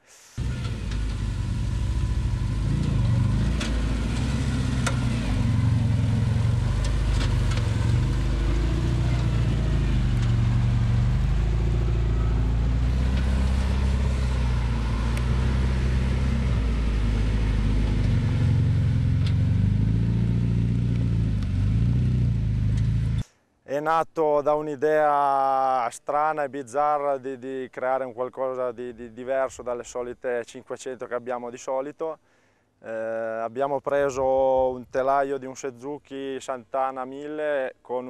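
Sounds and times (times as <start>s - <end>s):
off-road vehicle engine revving: 0.4s - 23.2s.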